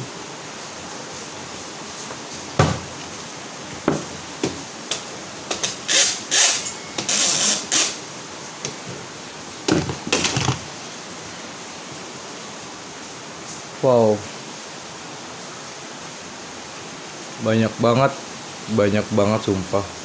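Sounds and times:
heavy rain hiss: 0.0s - 20.0s
toys knocking and clattering: 9.7s - 10.7s.

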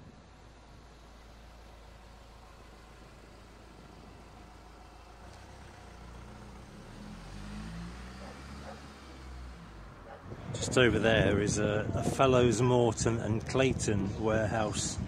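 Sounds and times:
low traffic rumble: 0.0s - 15.0s
vehicle engine building up: 0.0s - 15.0s.

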